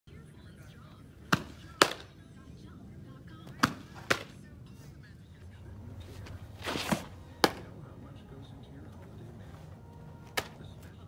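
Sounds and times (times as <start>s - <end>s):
ball popping into leather glove: 6.8s - 7.7s.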